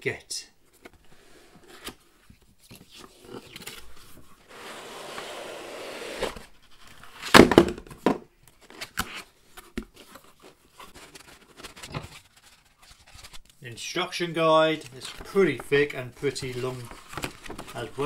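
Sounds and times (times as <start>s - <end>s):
cardboard scraping: 2.8s - 7.3s, 8.7s - 13.4s, 14.7s - 18.0s
packaging taps and rustles: 14.8s - 18.0s.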